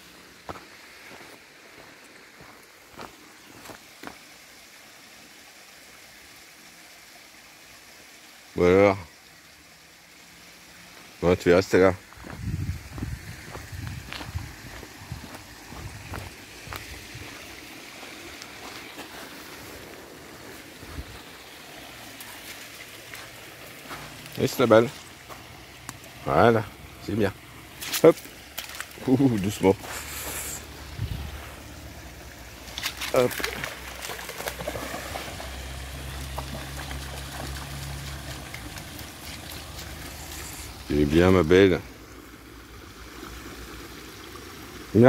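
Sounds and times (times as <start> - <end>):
shallow river rushing: 13.4 - 40.9
dog splashing through water: 27.8 - 30.1, 32.7 - 40.8.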